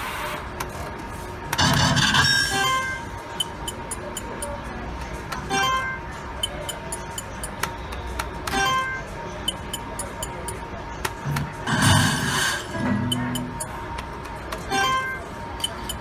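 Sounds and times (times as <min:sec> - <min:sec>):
slot machine jingling tones: 0:01.8 - 0:04.5, 0:05.4 - 0:07.6, 0:08.5 - 0:10.6, 0:11.7 - 0:13.8, 0:14.7 - 0:16.0.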